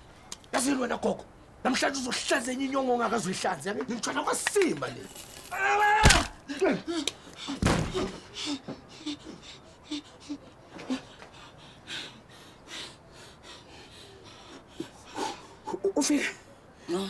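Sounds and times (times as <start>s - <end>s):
shaky gasping breaths: 6.9s - 15.8s.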